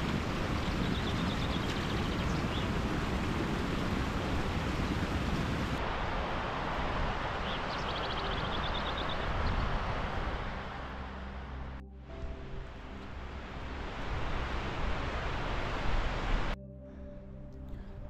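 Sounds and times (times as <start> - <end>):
wind buffeting microphone: 0.0 - 10.7.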